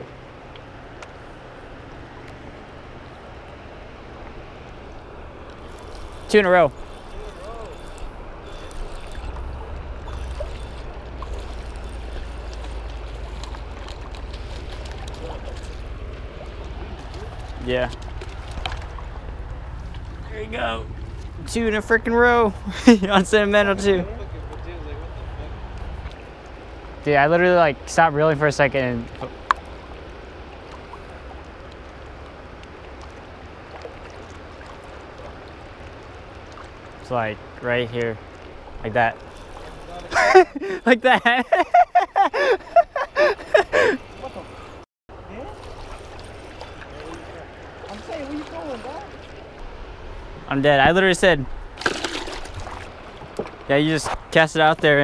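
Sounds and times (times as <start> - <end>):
wind rumbling on microphone: 0.0 - 27.1
flowing water: 0.0 - 55.0
fishing reel ticking: 5.5 - 13.2.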